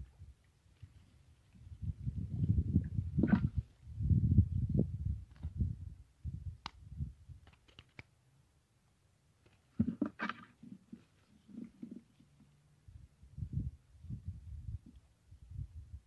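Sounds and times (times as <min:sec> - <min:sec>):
small sharp clicks: 0:07.4 - 0:08.2.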